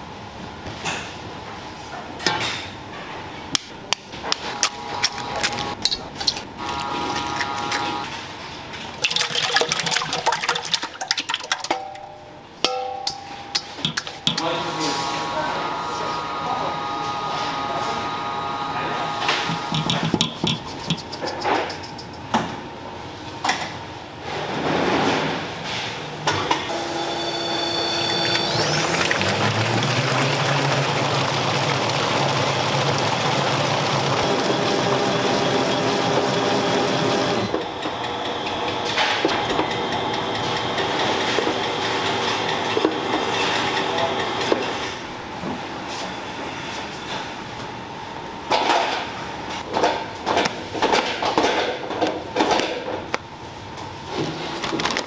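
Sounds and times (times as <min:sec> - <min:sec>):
mixer motor whining: 0:04.4 - 0:08.2, 0:14.2 - 0:20.2, 0:26.7 - 0:44.4
wire whisk whipping in bowl: 0:19.7 - 0:22.2.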